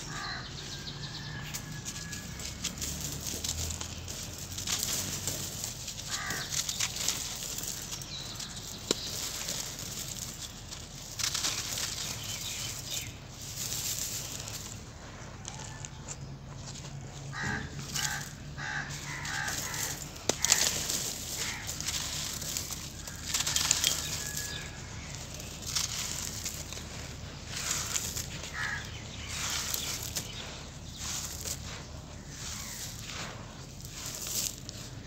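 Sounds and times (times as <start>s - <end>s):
bird calling: 0.0s - 14.7s, 17.2s - 35.0s
dirt crumbled by hand: 0.0s - 35.0s
grit pattering onto wire sieve: 17.8s - 35.0s.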